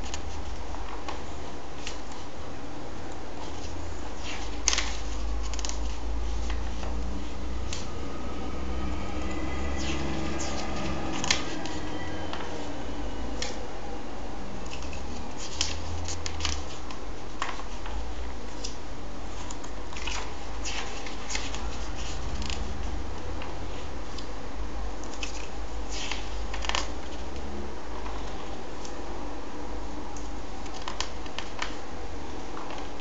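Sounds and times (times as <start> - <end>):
steady low hum: 0.0 - 33.0
comic book pages turning: 3.4 - 7.9, 9.7 - 12.7, 14.7 - 24.3, 25.1 - 29.0.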